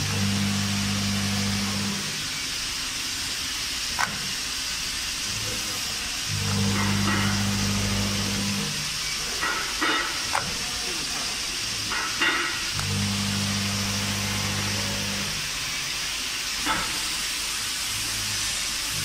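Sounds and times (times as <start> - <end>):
motor hum: 0.0 - 2.4, 5.3 - 9.1, 12.7 - 15.8
machine hissing: 0.0 - 19.0.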